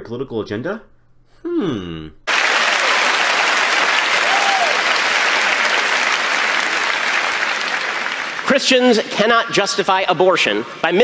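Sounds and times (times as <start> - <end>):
arena audience applauding: 2.3 - 9.6.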